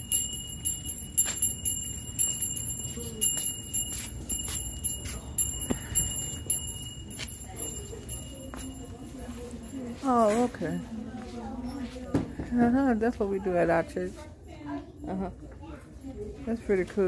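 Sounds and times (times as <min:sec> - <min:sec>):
small bells shaking: 0:00.0 - 0:11.0.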